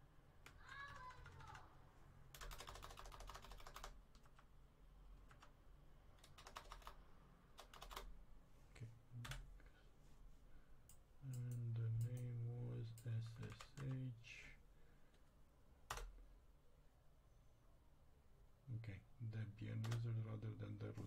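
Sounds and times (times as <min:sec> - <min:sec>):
keyboard keys tapping: 0:02.4 - 0:04.4.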